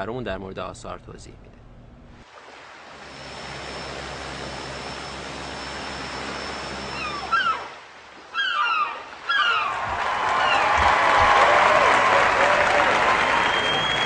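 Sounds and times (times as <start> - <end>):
propeller airliner flying overhead: 2.9 - 7.8
falling whistle-like cries: 6.8 - 7.7, 8.3 - 10.9, 12.6 - 14.0.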